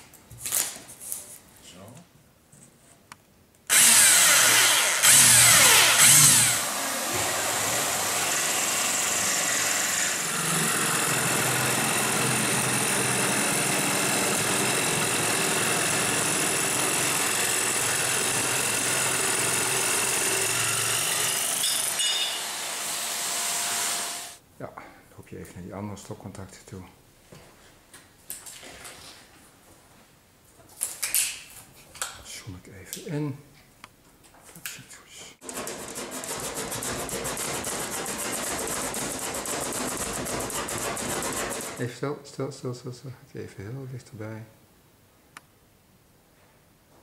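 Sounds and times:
electric drill boring metal: 0:03.7 - 0:24.4
jigsaw cutting metal sheet: 0:03.7 - 0:24.4, 0:35.4 - 0:41.8.

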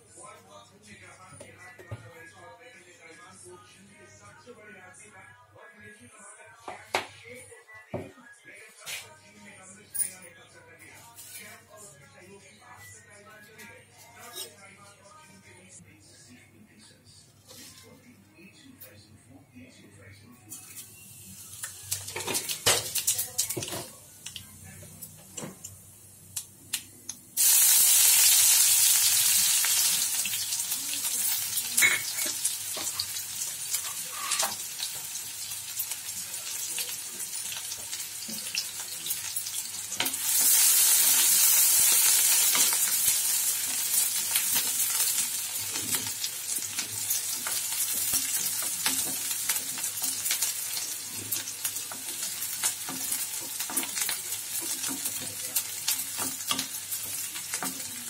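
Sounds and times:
onions sizzling in hot oil: 0:27.4 - 0:58.0
spatula scraping pan: 0:33.8 - 0:34.6.

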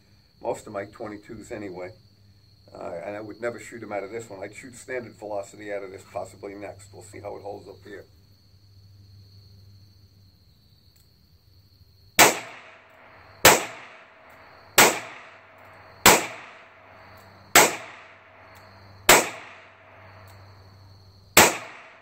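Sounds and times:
revolver shots with echo: 0:12.2 - 0:12.8, 0:13.5 - 0:14.1, 0:14.8 - 0:16.7, 0:17.6 - 0:18.2, 0:19.1 - 0:19.8, 0:21.4 - 0:22.0.

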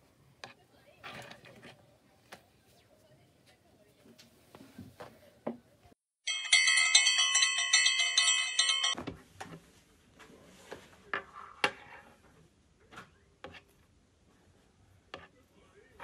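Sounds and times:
bell-like chime jingle: 0:06.2 - 0:09.0.

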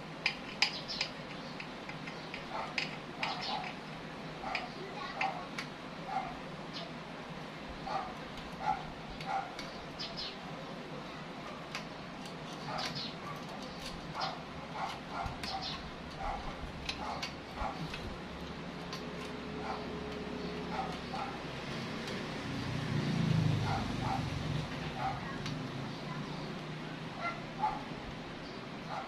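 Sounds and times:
dog barking: 0:02.5 - 0:03.6, 0:04.4 - 0:05.5, 0:06.1 - 0:06.4, 0:07.8 - 0:09.6, 0:12.7 - 0:13.6, 0:14.2 - 0:17.9, 0:19.6 - 0:19.9, 0:20.7 - 0:21.4, 0:23.6 - 0:25.4, 0:27.2 - 0:27.9.

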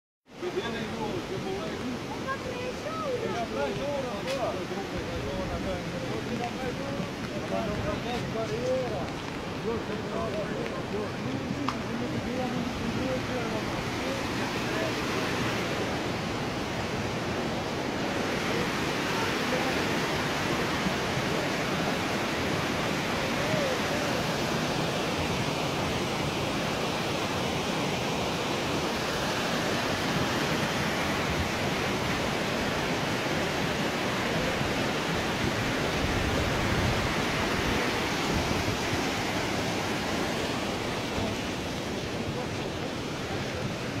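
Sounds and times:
floodwater rushing in stream: 0:00.3 - 0:44.0.

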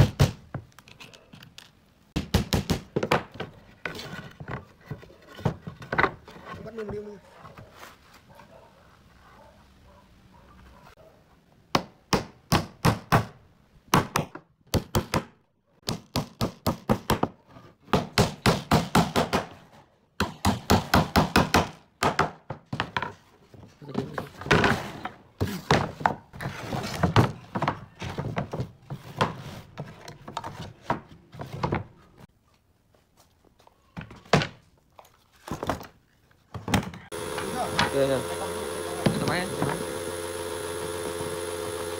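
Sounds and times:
hammer driving nails into wood: 0:00.0 - 0:00.5, 0:11.8 - 0:17.3, 0:20.2 - 0:22.5
wooden boards knocking and clattering: 0:02.2 - 0:07.0, 0:21.6 - 0:31.9.

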